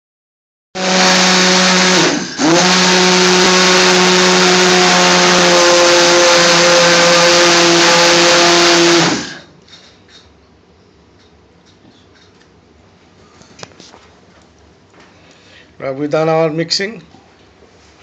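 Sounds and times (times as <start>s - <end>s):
stick blender motor whine: 0.8s - 9.5s.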